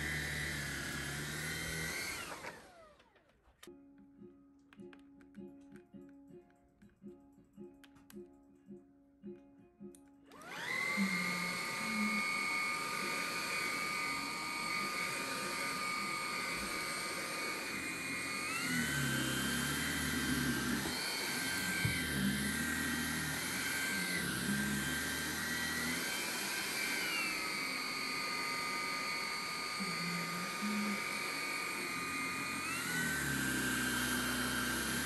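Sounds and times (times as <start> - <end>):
stick vacuum high whine: 0.0 - 3.3, 10.3 - 35.0.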